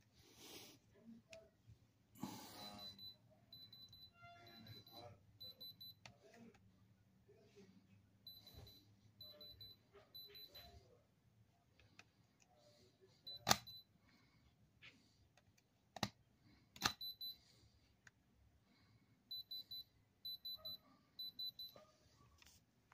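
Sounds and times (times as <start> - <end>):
gem tester high beeps: 2.5 - 6.1, 8.3 - 10.8, 13.3 - 13.9, 16.9 - 17.4, 19.3 - 21.8.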